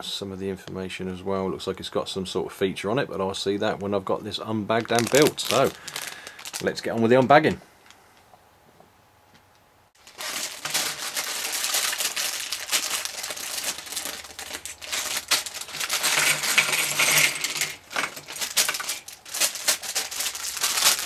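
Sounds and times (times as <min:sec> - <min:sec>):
plastic bag crinkling and tearing: 0:04.7 - 0:07.4, 0:10.0 - 0:21.0
plastic pieces clattering on table: 0:04.8 - 0:06.7, 0:10.1 - 0:21.0.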